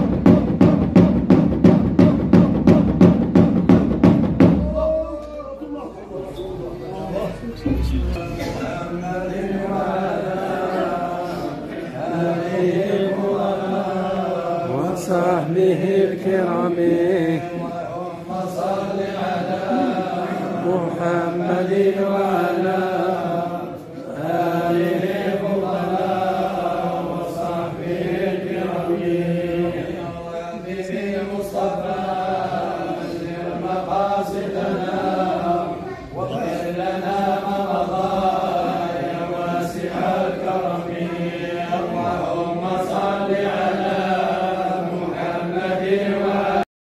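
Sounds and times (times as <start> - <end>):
men chanting in unison: 4.5 - 46.7
steady held low note: 5.0 - 10.3.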